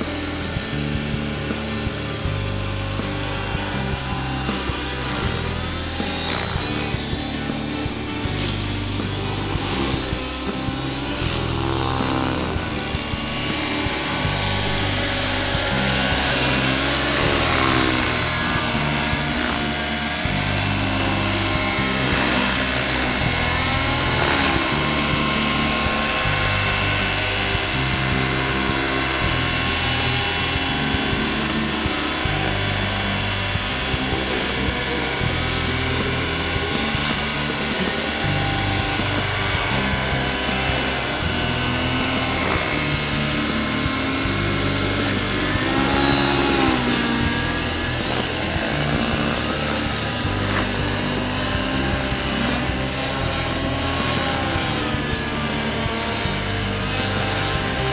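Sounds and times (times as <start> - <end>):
model helicopter rotor whine: 0.0 - 57.9.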